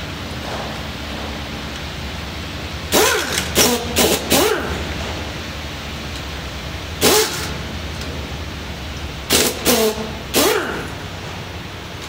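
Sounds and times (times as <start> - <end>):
impact wrench whining bursts: 2.9 - 4.8, 7.0 - 7.6, 9.3 - 11.0.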